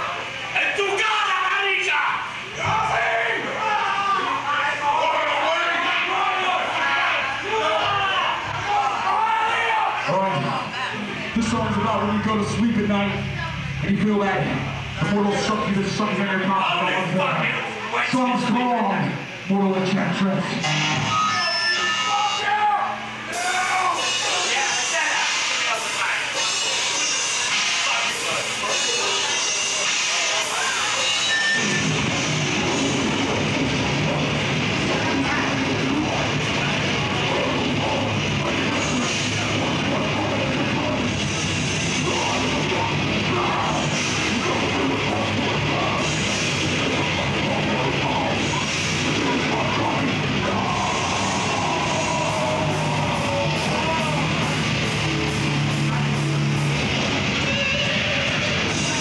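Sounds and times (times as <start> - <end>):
death metal band playing: 20.6 - 59.0.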